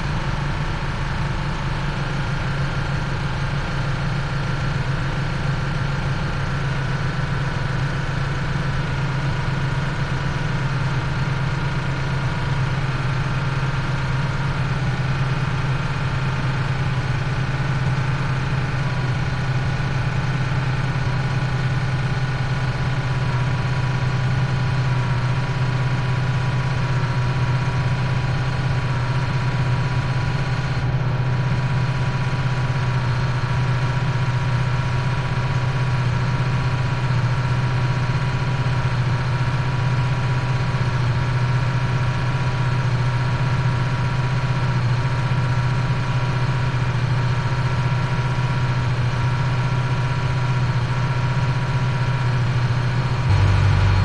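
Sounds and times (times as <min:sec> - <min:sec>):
boat engine running: 0:48.3 - 0:54.0.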